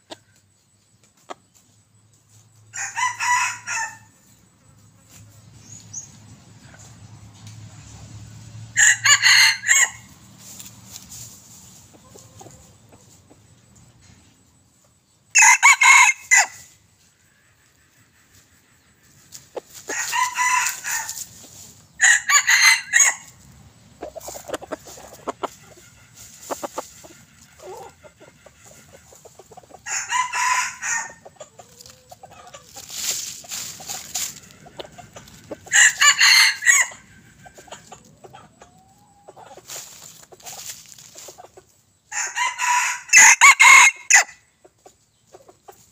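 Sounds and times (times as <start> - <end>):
roosters crowing: 2.7 - 4.3, 8.3 - 11.0, 15.3 - 16.8, 19.3 - 41.0, 42.0 - 44.4
rustling in dry leaves: 8.8 - 13.2, 18.2 - 28.0, 28.6 - 38.1, 39.3 - 43.0.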